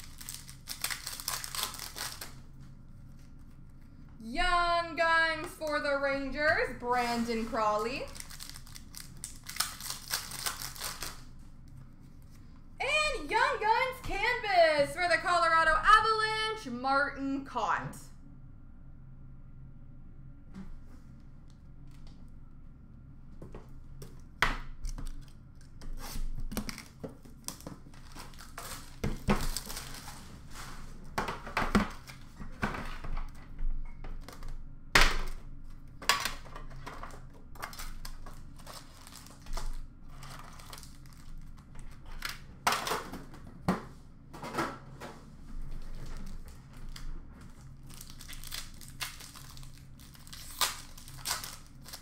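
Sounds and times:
wrappers tearing and crumpling: 0:00.0 - 0:02.5, 0:07.1 - 0:11.3, 0:24.9 - 0:30.5, 0:37.6 - 0:42.4, 0:46.0 - 0:52.0.

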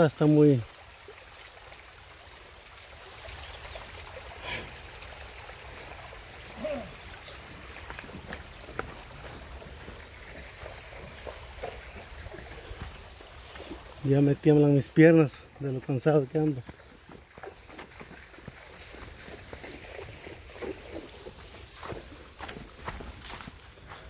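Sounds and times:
creek trickling: 0:00.0 - 0:24.0
footsteps on sandy ground: 0:07.4 - 0:14.1, 0:15.3 - 0:24.0.

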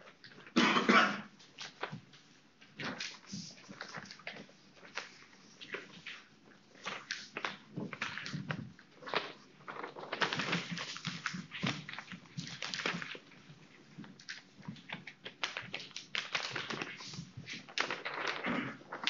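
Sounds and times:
paper rustling and crackling: 0:01.4 - 0:19.0.

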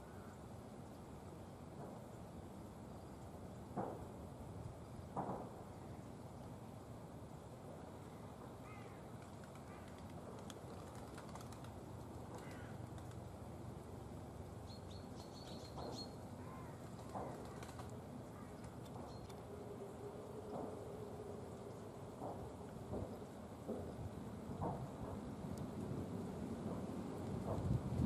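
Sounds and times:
faint bird chirps: 0:14.6 - 0:19.4.

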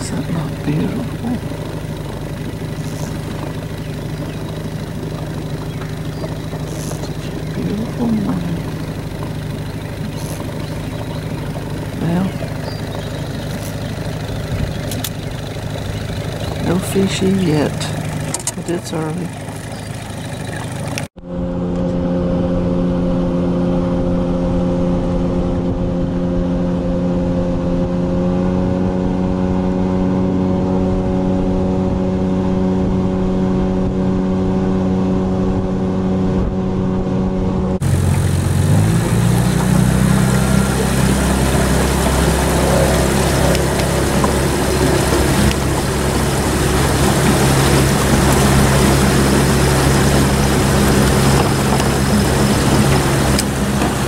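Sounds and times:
rushing water noise: 0:00.0 - 0:21.1, 0:37.8 - 0:54.0
boat motor running: 0:00.0 - 0:54.0.

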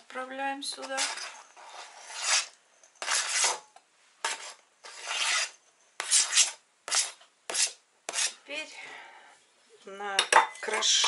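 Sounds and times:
knife scraping plastic board: 0:00.7 - 0:03.6, 0:04.2 - 0:08.4.

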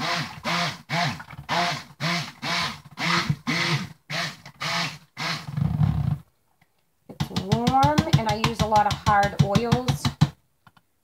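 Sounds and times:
stick blender pulsing: 0:00.0 - 0:06.1.

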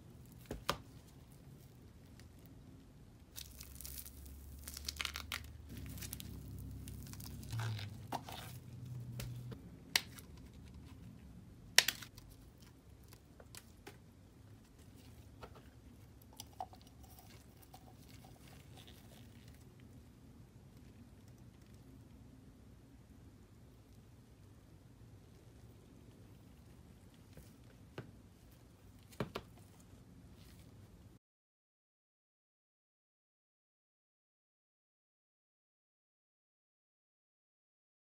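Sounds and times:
plastic film crinkling and tearing: 0:03.3 - 0:09.4.

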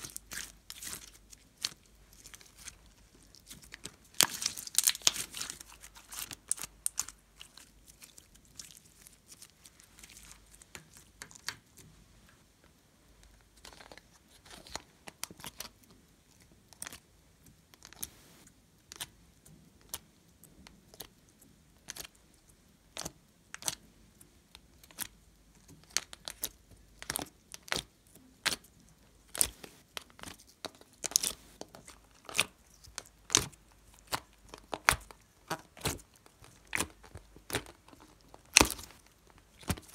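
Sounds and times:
slime squelching and popping: 0:00.0 - 0:11.8, 0:29.3 - 0:39.9.

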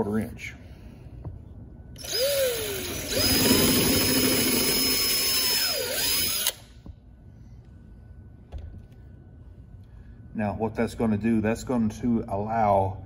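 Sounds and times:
power drill whining: 0:02.0 - 0:06.6.

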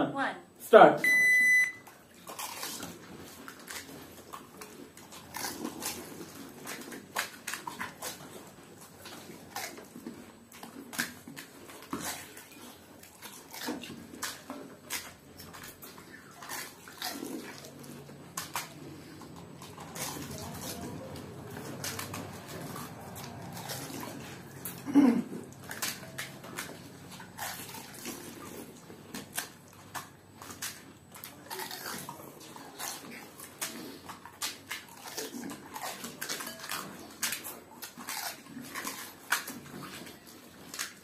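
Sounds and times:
short high electronic beep: 0:01.0 - 0:01.8
crisp food crunching: 0:01.9 - 0:41.0
slurping and wet mouth noises: 0:02.0 - 0:41.0.

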